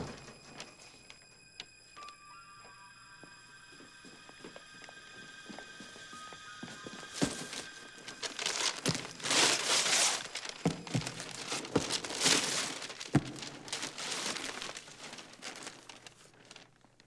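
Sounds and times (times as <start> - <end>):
wrapping paper tearing and crumpling: 7.2 - 17.0.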